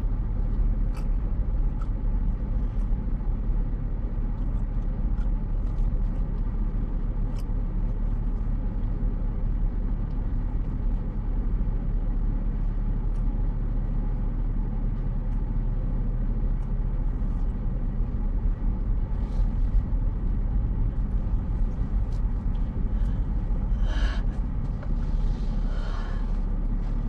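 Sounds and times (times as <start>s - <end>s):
car engine rumble: 0.0s - 27.0s
road noise inside car: 0.0s - 27.0s.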